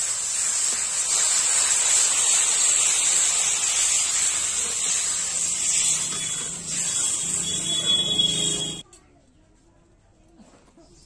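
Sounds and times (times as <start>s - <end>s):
water sizzling in hot pan: 0.0s - 8.8s.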